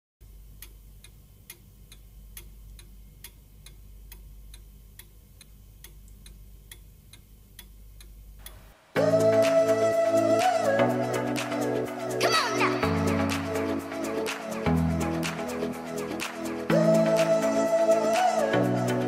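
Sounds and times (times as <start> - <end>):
clock ticking: 0.6 - 8.8.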